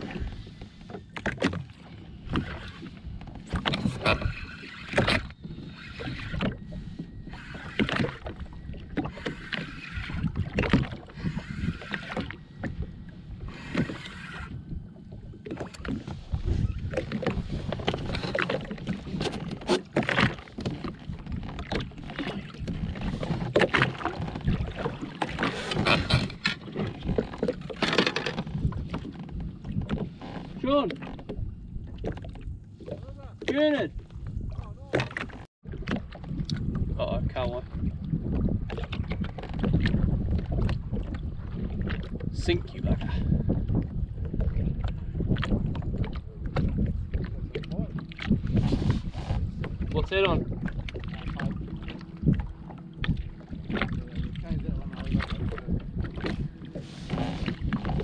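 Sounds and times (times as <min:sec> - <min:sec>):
water slapping against a hull: 0:00.0 - 0:58.0
fishing reel reeling in: 0:04.2 - 0:06.5, 0:07.2 - 0:08.2, 0:13.5 - 0:14.6.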